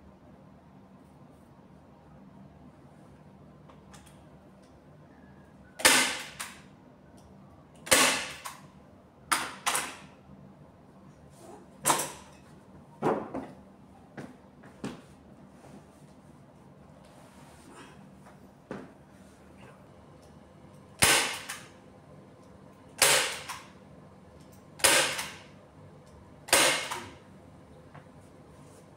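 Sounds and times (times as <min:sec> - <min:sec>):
staple gun firing: 0:05.8 - 0:06.6, 0:07.8 - 0:08.6, 0:21.0 - 0:21.7, 0:23.0 - 0:23.7, 0:24.8 - 0:25.4, 0:26.5 - 0:27.1.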